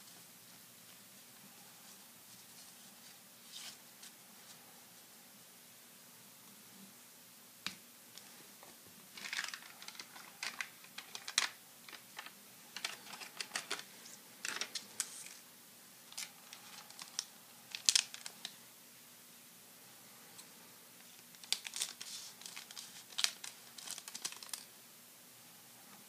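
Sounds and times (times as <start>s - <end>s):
foil card pack crinkling: 9.1s - 15.4s, 16.1s - 18.4s, 21.3s - 24.7s
trading cards rustling and clicking: 9.1s - 15.4s, 16.1s - 18.4s, 21.3s - 24.7s.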